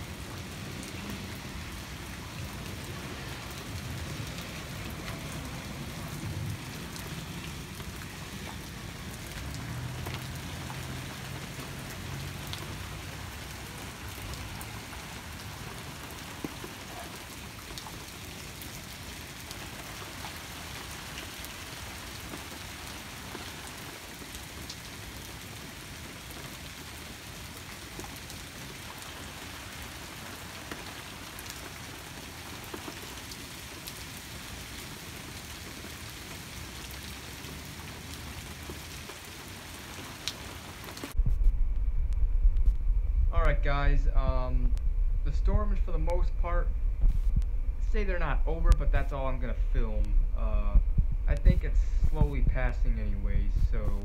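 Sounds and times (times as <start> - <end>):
heavy rain falling: 0.0 - 54.0
distant thunder rumble: 41.1 - 54.0.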